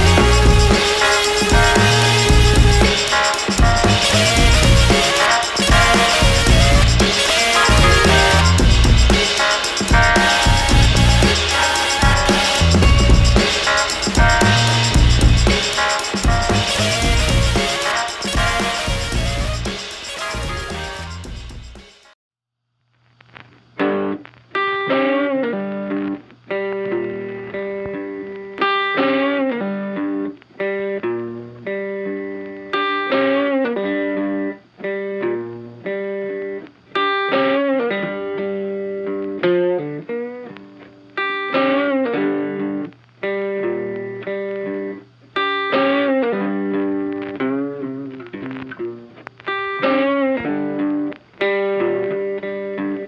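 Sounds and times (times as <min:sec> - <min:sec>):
plucked guitar music: 0:00.0 - 0:21.3, 0:23.8 - 0:53.0.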